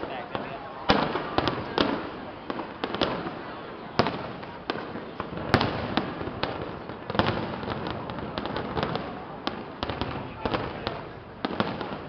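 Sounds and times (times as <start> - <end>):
continuous noisy background: 0.0 - 12.0
fireworks bangs and crackles: 0.0 - 12.0.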